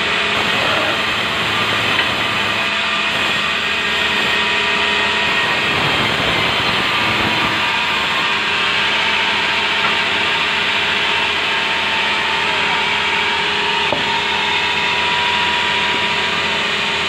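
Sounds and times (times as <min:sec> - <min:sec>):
band saw ripping plank: 0:05.4 - 0:08.5.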